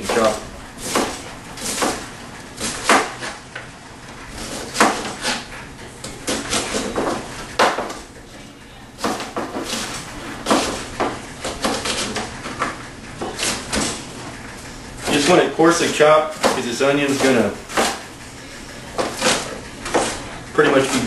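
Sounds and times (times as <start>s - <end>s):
knife chopping on plastic board: 0.0s - 3.7s, 4.4s - 8.0s, 9.0s - 14.0s, 15.0s - 18.1s, 19.0s - 21.0s.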